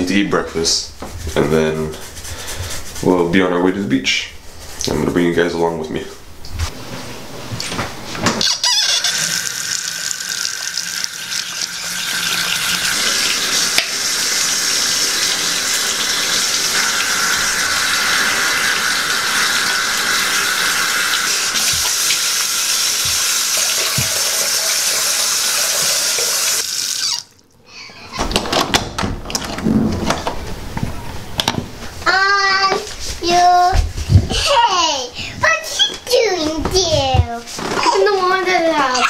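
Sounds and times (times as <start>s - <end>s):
faucet water splashing in sink: 8.6s - 27.4s.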